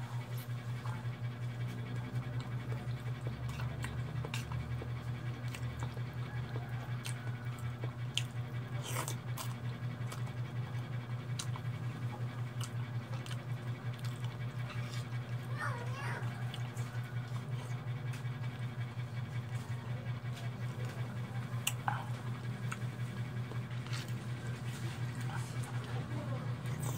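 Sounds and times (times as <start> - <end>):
steady low hum: 0.0 - 26.9
chewing: 0.1 - 26.9
noodles being slurped: 8.2 - 10.5, 11.4 - 18.2.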